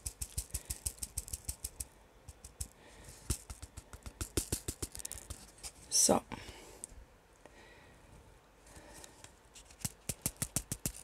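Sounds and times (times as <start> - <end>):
plastic beads rattling in a tray: 0.0 - 5.5.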